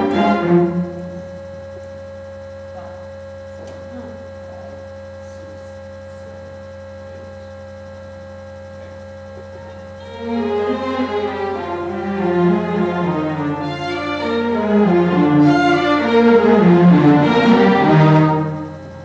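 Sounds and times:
orchestra strings playing: 0.0 - 1.3, 10.0 - 18.8
electrical mains hum: 0.0 - 19.0.

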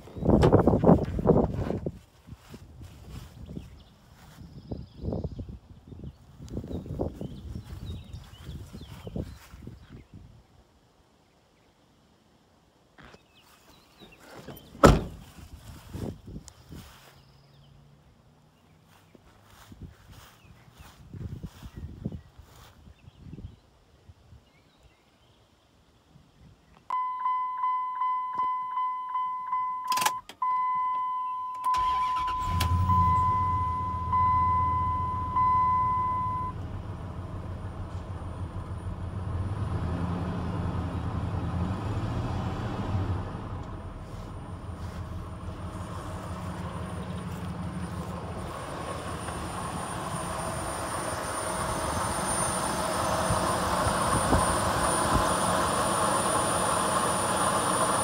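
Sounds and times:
door-ajar warning chime: 27.0 - 36.6
truck engine idling: 31.8 - 58.0.

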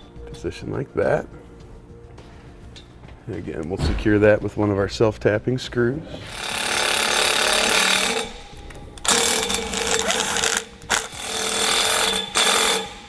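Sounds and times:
power driver driving screw into metal: 6.4 - 13.0.

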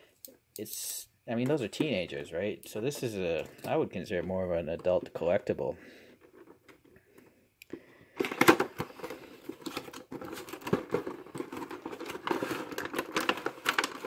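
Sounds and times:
plastic tray crinkling: 8.2 - 14.0
cardboard box being opened: 9.6 - 14.0.

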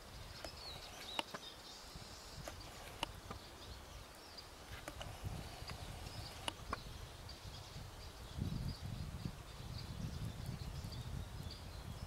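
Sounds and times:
finches twittering: 0.1 - 11.8
sharp clicks: 0.4 - 1.4, 4.8 - 5.8.

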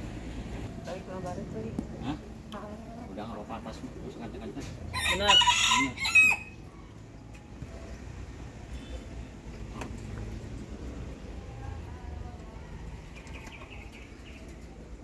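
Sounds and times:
rooster crowing: 4.9 - 6.6.

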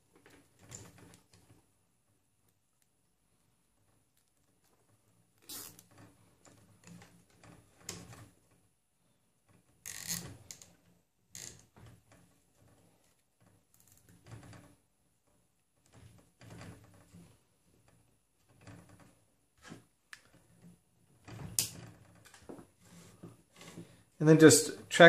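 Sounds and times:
zip tie rasping through lock: 5.4 - 6.0, 9.8 - 10.7.

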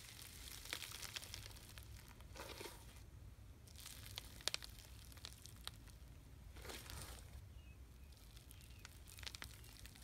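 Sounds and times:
slime crackling and popping: 0.0 - 2.3, 3.6 - 7.3, 8.0 - 10.0.

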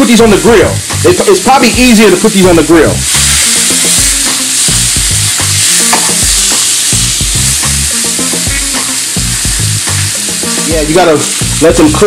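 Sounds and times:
meat sizzling in a frying pan: 0.0 - 12.0
metal fork scraping a pan: 3.1 - 7.0.

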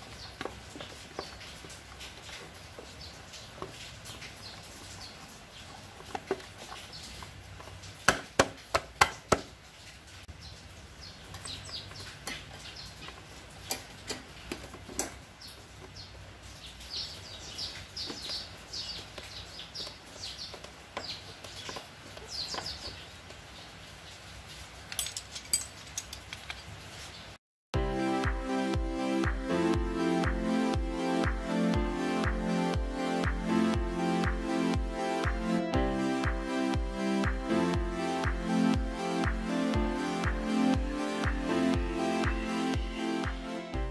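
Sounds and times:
taps and knocks: 8.1 - 9.5.

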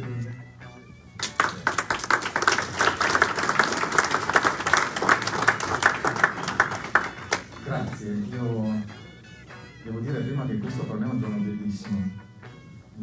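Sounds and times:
group of people applauding: 1.2 - 8.0.

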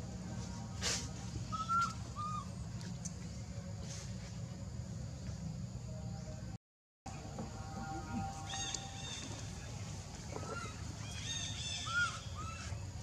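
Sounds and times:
rustle: 0.2 - 5.4
whistle-like animal calls: 1.5 - 2.5, 10.4 - 12.8.

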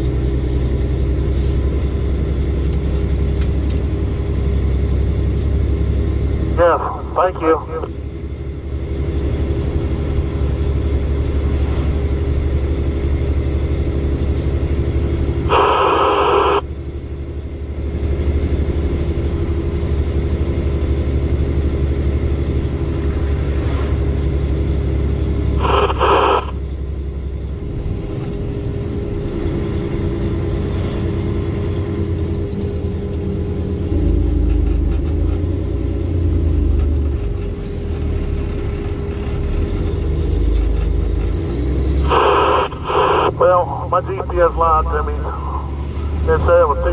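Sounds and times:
truck diesel engine rumble: 0.0 - 46.9
short bursts of noise: 25.6 - 26.6.

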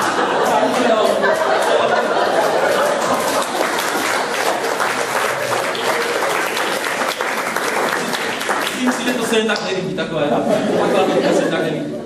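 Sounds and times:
audience applauding: 0.5 - 9.7.

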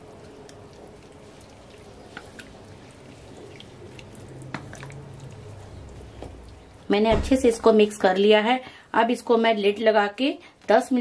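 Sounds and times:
spatula stirring wet gravy: 0.0 - 6.8.

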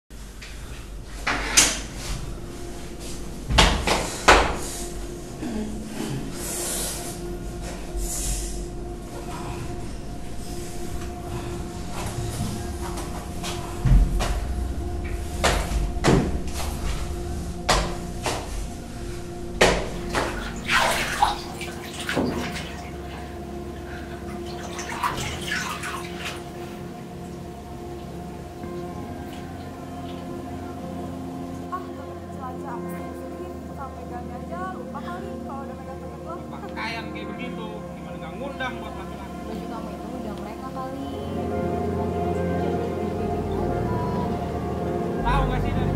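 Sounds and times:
faint steady hum: 0.1 - 45.9
water splashing in a bathtub: 19.6 - 27.2.

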